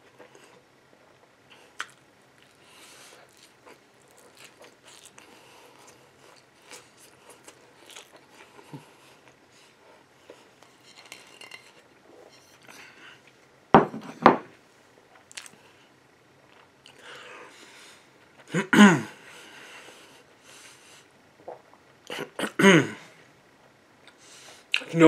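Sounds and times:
person chewing food: 1.5 - 11.9, 15.1 - 15.6.

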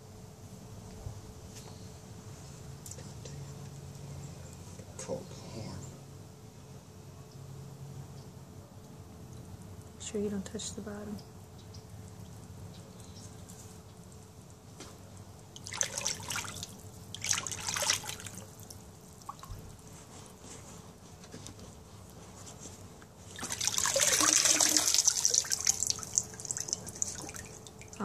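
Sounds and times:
water pouring and dripping: 11.6 - 19.8, 23.2 - 28.0
water sloshing in a tub: 11.7 - 28.0.

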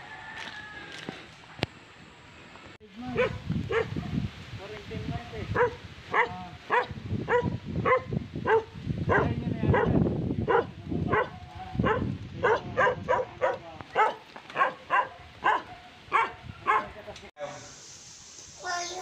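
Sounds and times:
small dog barking: 3.1 - 4.2, 5.6 - 17.0.

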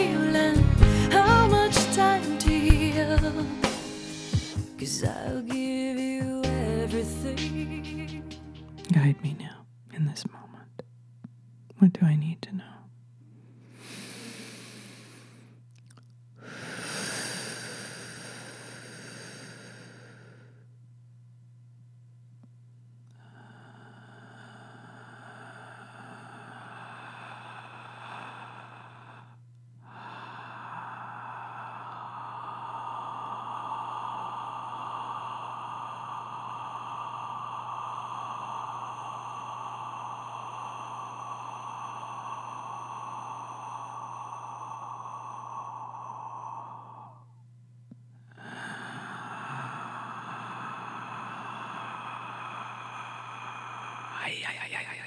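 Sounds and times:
person breathing deeply: 0.0 - 1.7, 3.0 - 4.8, 13.3 - 15.6, 16.4 - 20.7, 23.1 - 55.0
low hum: 17.7 - 55.0.

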